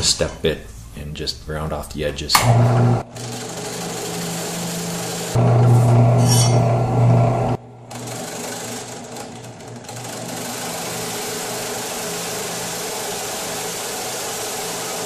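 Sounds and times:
drill press cutting metal hiss: 3.3s - 6.6s, 9.9s - 15.0s.

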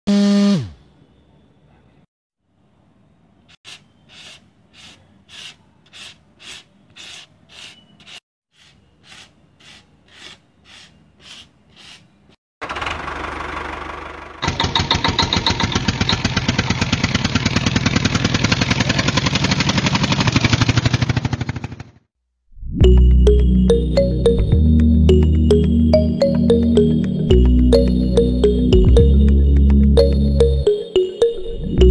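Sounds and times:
hand brush sweeping concrete: 3.7s - 12.1s.

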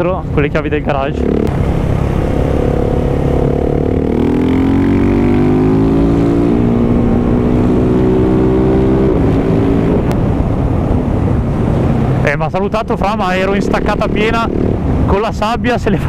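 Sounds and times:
motorcycle engine while riding: 0.0s - 12.2s, 13.3s - 15.1s.

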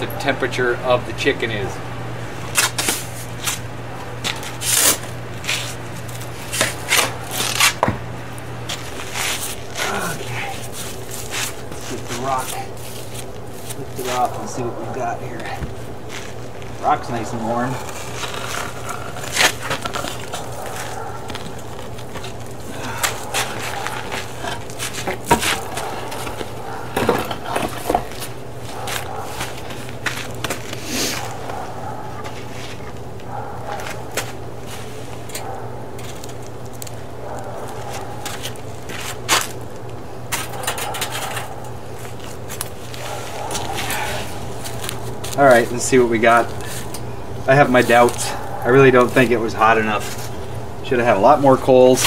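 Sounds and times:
shovel grating on stone: 4.4s - 5.8s, 6.4s - 7.8s.

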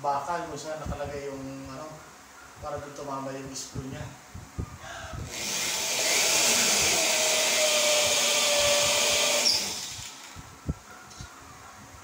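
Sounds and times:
electric drill driving screw: 5.3s - 10.4s.

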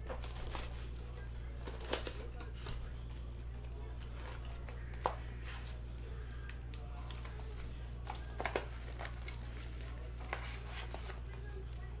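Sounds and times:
foil packs rustling: 0.0s - 2.7s, 7.1s - 12.0s.

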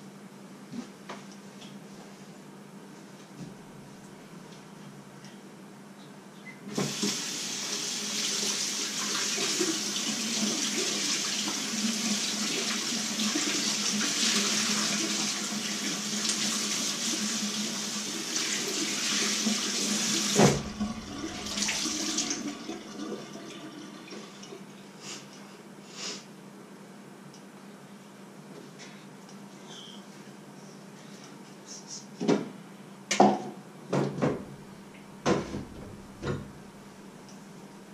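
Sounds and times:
tap running into sink: 20.2s - 22.5s, 35.3s - 36.6s.

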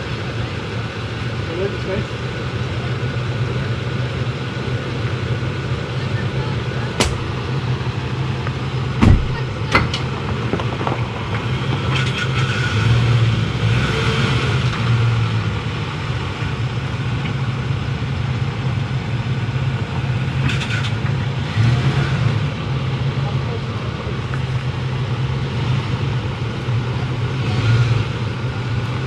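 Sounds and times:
truck engine running low: 0.0s - 29.0s
sharp knocks: 7.0s - 7.4s, 9.0s - 9.9s.

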